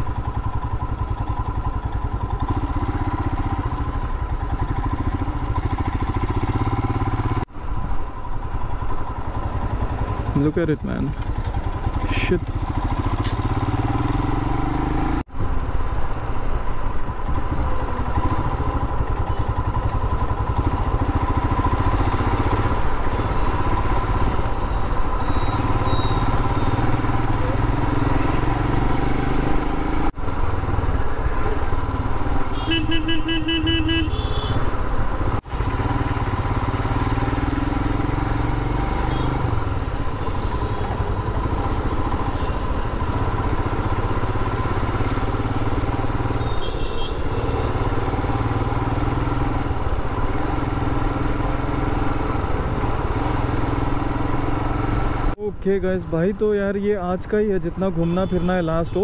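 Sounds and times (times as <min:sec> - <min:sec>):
motorcycle engine running: 0:00.0 - 0:55.4
road and wind noise: 0:00.0 - 0:59.0
vehicle horn beeping: 0:25.3 - 0:26.8, 0:32.5 - 0:34.7, 0:39.0 - 0:39.4, 0:42.3 - 0:42.8, 0:46.4 - 0:48.0, 0:58.0 - 0:59.0.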